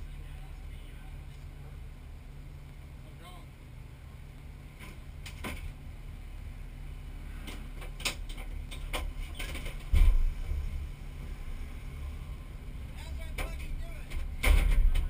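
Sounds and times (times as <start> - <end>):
light clicks and rattles: 7.4 - 10.2, 13.0 - 15.0.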